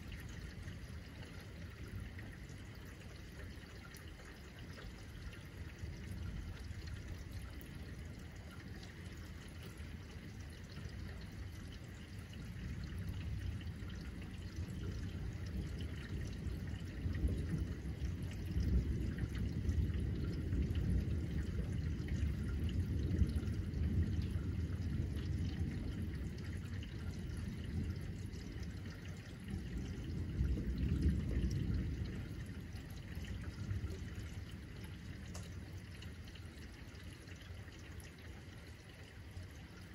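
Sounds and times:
rain falling and dripping: 0:00.0 - 0:39.9
low rolling thunder: 0:09.8 - 0:36.7.

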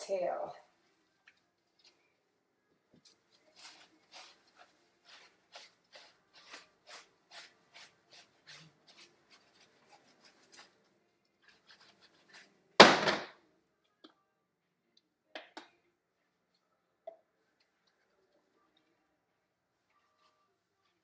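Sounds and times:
hands scrubbing wet fur: 0:03.0 - 0:12.8.

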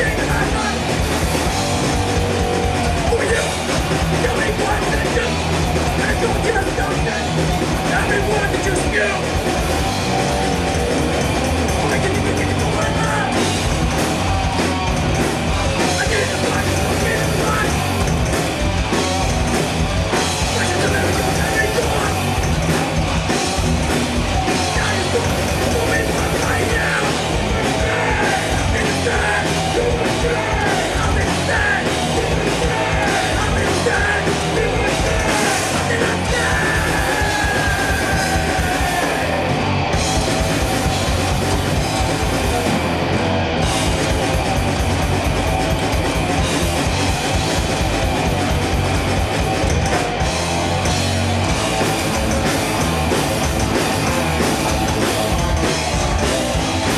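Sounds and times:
metal band playing: 0:00.0 - 0:56.9
pounding drum kit: 0:00.0 - 0:56.9
person yelling vocals: 0:24.8 - 0:39.5.

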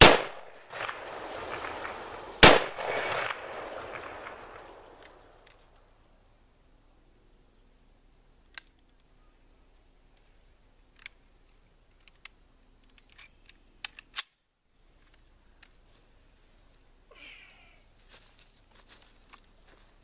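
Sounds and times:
faint clicks and knocks: 0:11.9 - 0:14.2.

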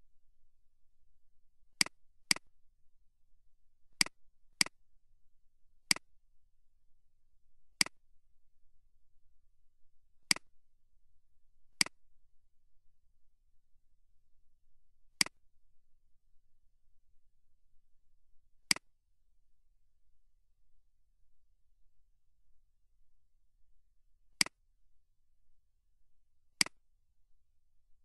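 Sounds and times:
mouse button clicking: 0:26.6 - 0:26.8.

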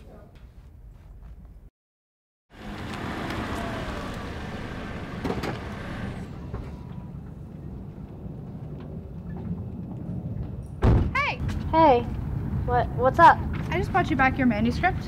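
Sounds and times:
car engine and tyres: 0:02.5 - 0:10.8.

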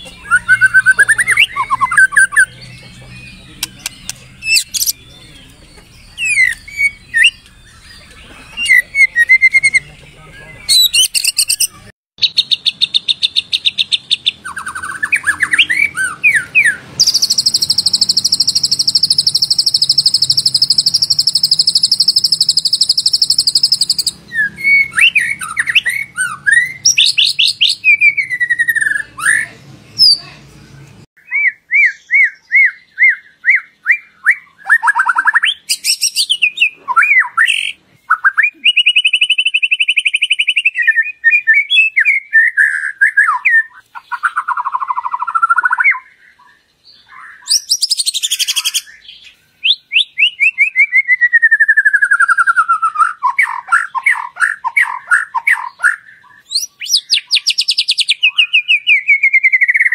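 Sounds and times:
bird singing whistled phrases: 0:00.0 - 0:30.2, 0:31.2 - 0:59.9.

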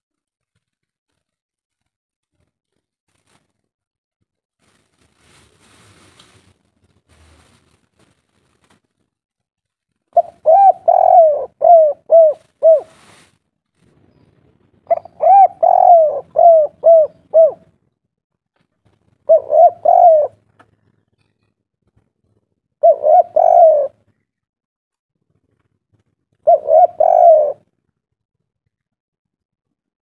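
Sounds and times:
dove cooing: 0:10.2 - 0:13.2, 0:14.9 - 0:17.8, 0:19.2 - 0:20.5, 0:22.8 - 0:24.0, 0:26.4 - 0:27.7.

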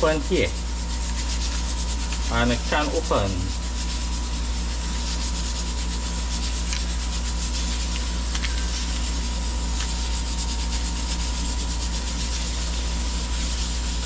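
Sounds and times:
steady background hum: 0:00.0 - 0:14.0
thin steady whine: 0:00.0 - 0:14.0.

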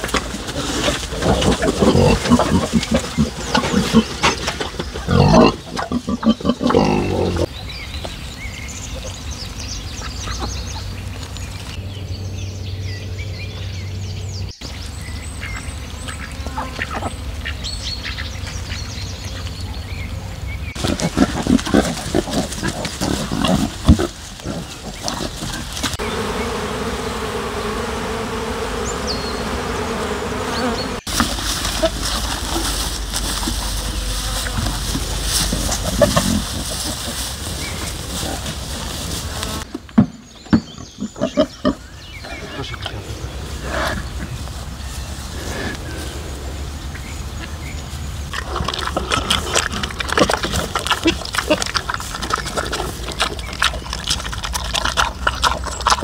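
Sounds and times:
pigs grunting: 0:00.0 - 0:07.5, 0:19.7 - 0:26.3, 0:30.5 - 0:39.7, 0:40.8 - 0:44.6, 0:45.2 - 0:56.0.

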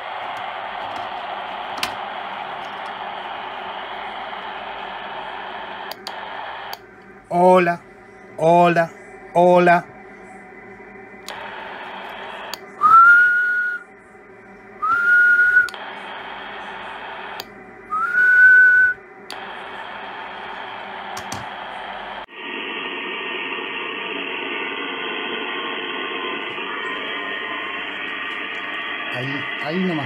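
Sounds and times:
radio band noise: 0:00.0 - 0:30.0
shortwave receiver hiss: 0:00.0 - 0:30.0
whistled notes: 0:12.8 - 0:13.8, 0:14.8 - 0:15.8, 0:17.9 - 0:19.0.

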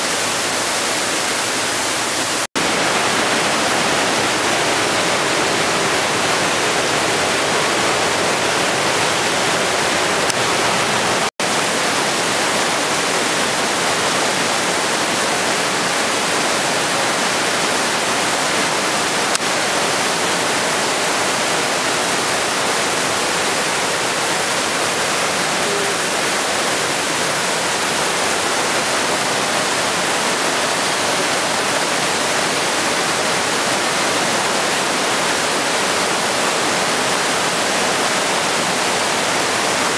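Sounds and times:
mountain torrent roaring: 0:00.0 - 0:39.9.

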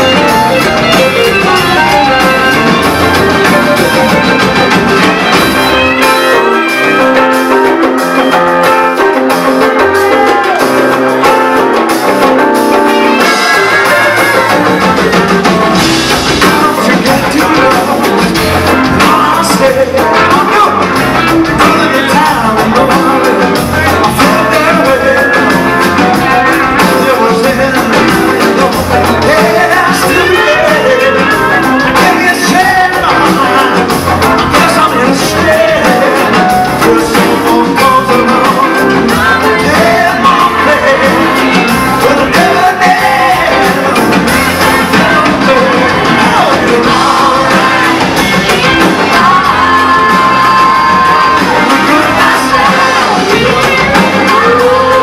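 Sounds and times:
live rock band playing: 0:00.0 - 0:55.0
group of people singing: 0:13.2 - 0:55.0.

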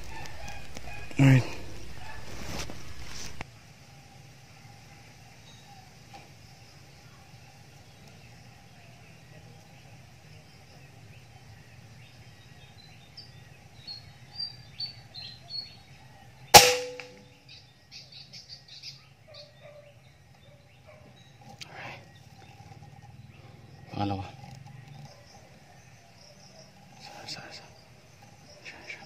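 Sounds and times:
rifle shot: 0:16.6 - 0:17.3.

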